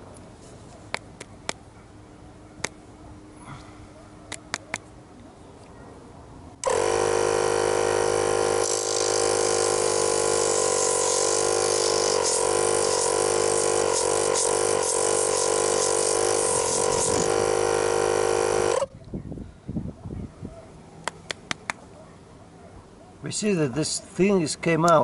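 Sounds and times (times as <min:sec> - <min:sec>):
compressed air hissing: 0:06.6 - 0:18.8
air compressor running: 0:06.6 - 0:18.9.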